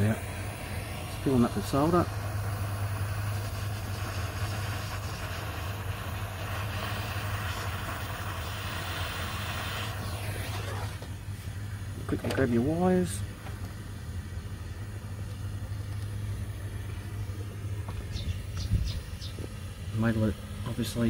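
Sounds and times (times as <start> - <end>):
heat tool rushing hiss: 0.0 - 11.6.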